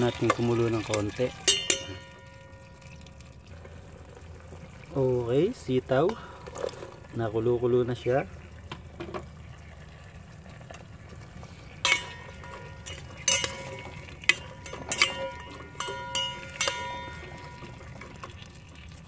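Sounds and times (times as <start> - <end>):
broth simmering: 0.0 - 19.0
metal spoon clinking against pot: 0.2 - 3.0, 11.8 - 18.2.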